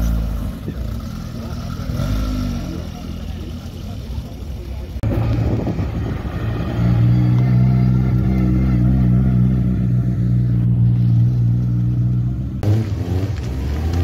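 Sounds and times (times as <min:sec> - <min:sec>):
car engine running steadily: 0:02.7 - 0:14.0.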